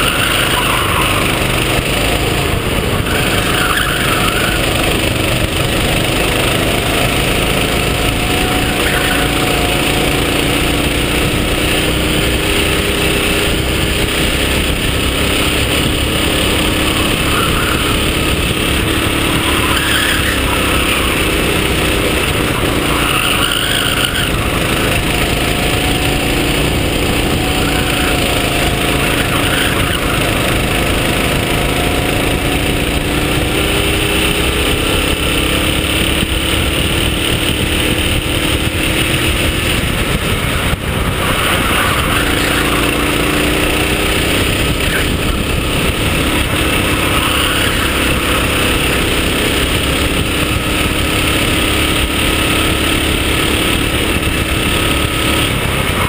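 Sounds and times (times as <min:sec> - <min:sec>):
kart engine revving: 0:00.0 - 0:56.0
wind and road noise: 0:00.0 - 0:56.0.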